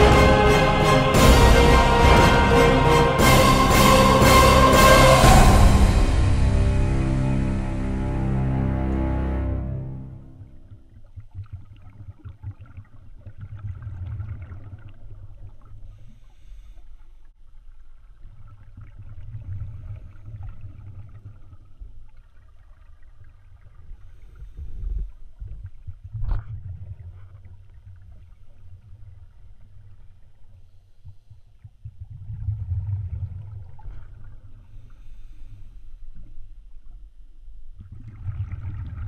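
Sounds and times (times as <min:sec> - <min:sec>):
underwater rumbling with crackling: 0:10.5 - 0:39.0.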